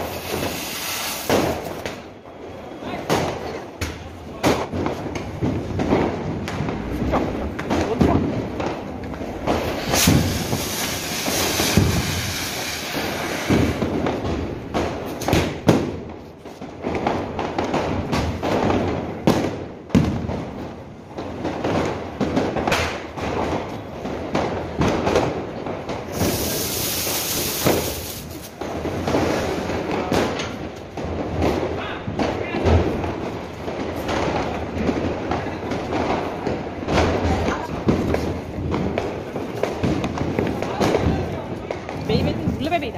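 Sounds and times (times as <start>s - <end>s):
firework hissing: 0.0s - 3.5s, 5.0s - 15.7s, 24.9s - 30.6s
firecracker bangs and crackles: 0.0s - 42.9s.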